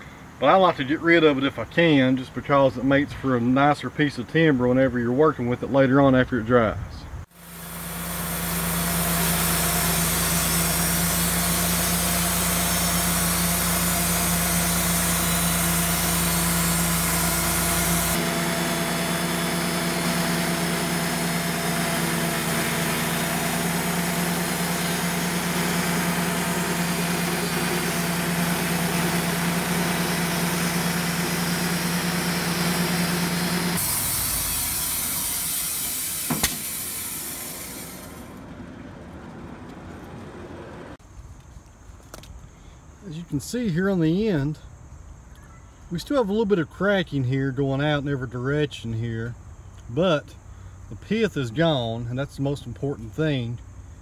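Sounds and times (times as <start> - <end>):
sawmill engine running: 7.3 - 41.0
band blade sawing wood: 7.4 - 38.4.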